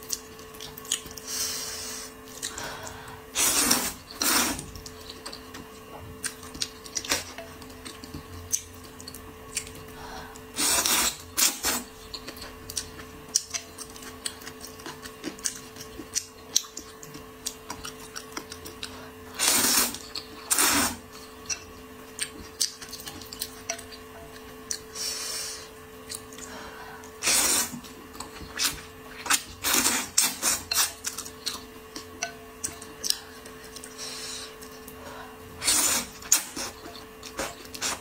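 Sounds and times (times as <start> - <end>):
faint steady hum: 0.0 - 38.0
noodles slurped: 3.4 - 4.8.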